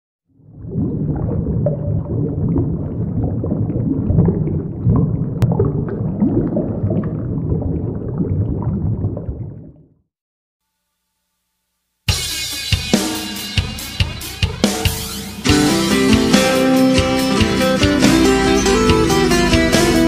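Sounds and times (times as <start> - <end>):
deep underwater rumble: 0.3 - 10.1
gurgling bubbles: 0.3 - 10.1.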